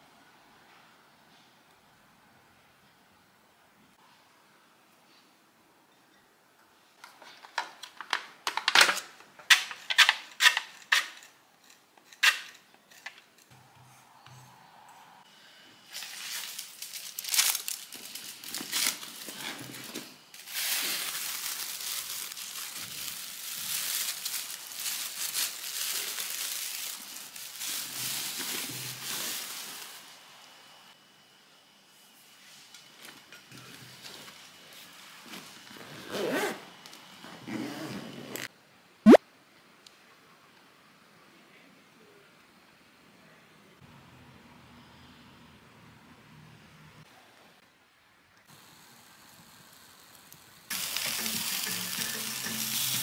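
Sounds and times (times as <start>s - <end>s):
crinkling: 15.9s - 30.0s.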